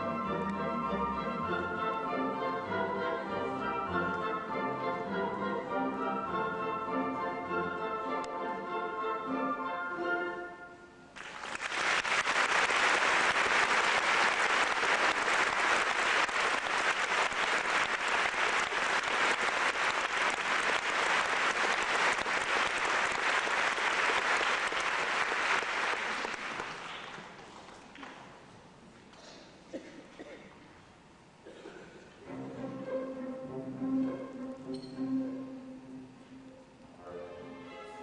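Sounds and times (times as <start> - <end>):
audience applauding: 11.2 - 27.8.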